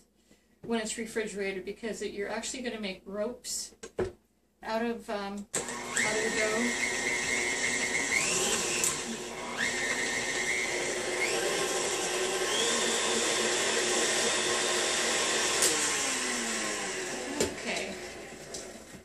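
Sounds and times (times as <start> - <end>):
stand mixer whirring: 5.6 - 19.0.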